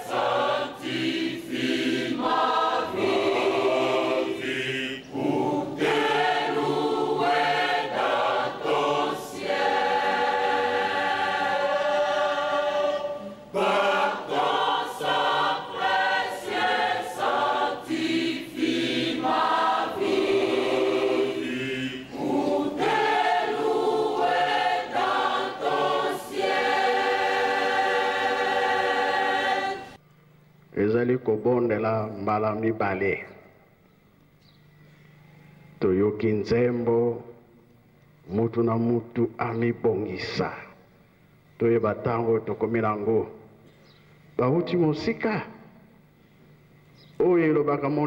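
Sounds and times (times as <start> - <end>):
choir singing a hymn: 0.0 - 30.0.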